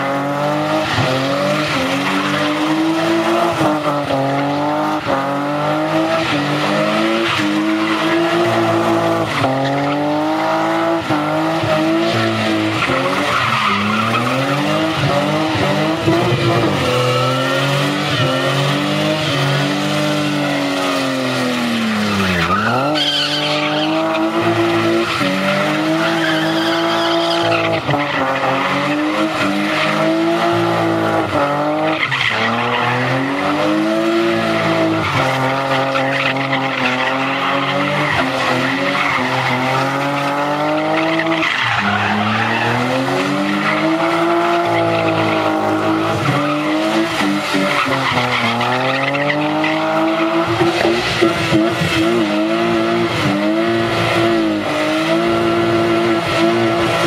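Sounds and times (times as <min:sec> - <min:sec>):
car engine revving high: 0:00.0 - 0:57.0
tyres squealing: 0:22.1 - 0:31.2, 0:31.8 - 0:52.1.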